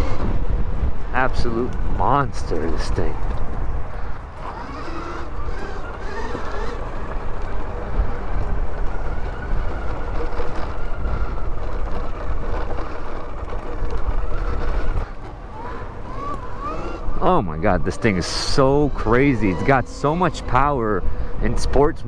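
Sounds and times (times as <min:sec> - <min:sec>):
electric motor whine: 0:00.0 - 0:00.5, 0:04.1 - 0:20.7
tyres rumbling on dirt: 0:00.0 - 0:22.0
wind noise on microphone: 0:00.0 - 0:22.0.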